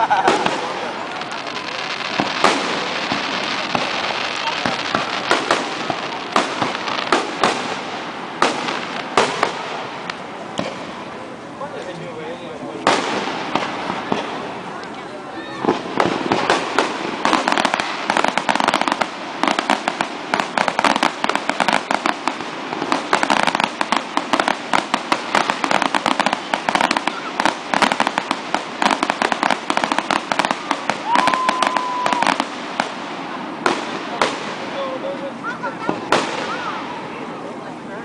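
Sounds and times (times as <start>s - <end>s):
fireworks bangs and crackles: 0.0s - 38.0s
firework whistle: 30.4s - 33.0s.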